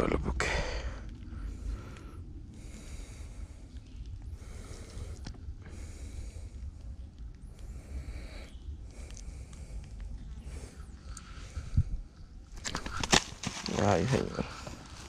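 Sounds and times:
person breathing through nose: 0:00.4 - 0:12.1.

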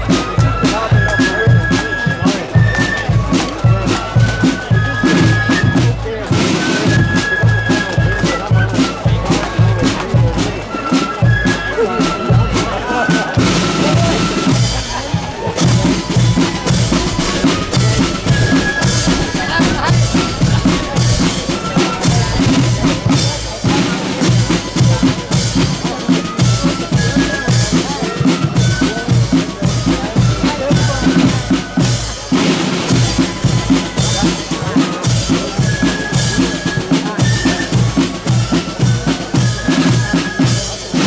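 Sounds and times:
marching band drums: 0:00.0 - 0:41.0
high piping notes: 0:10.7 - 0:27.3.

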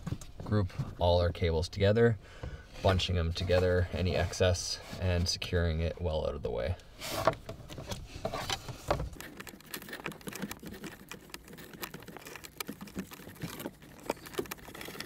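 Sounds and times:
wiring rustling and clicking: 0:07.2 - 0:15.0.

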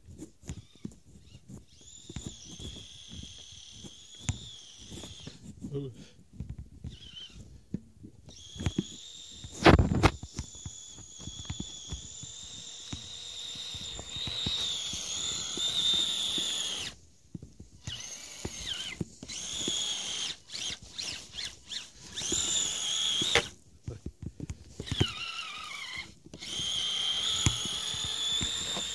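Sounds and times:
electric motor and gears whining: 0:00.4 - 0:05.4, 0:06.8 - 0:07.4, 0:08.3 - 0:17.0, 0:17.8 - 0:23.6, 0:24.8 - 0:28.9.

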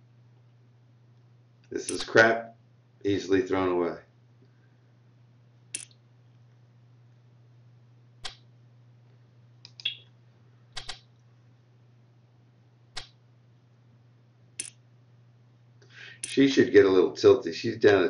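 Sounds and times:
low steady hum: 0:00.0 - 0:18.0
short sharp clicks: 0:10.8 - 0:11.1, 0:14.6 - 0:14.8.

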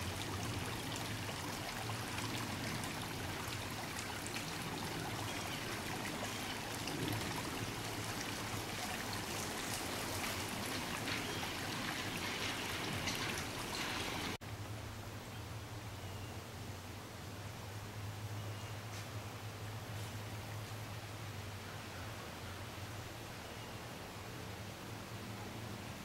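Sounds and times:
creek water trickling over rocks: 0:00.0 - 0:14.4.

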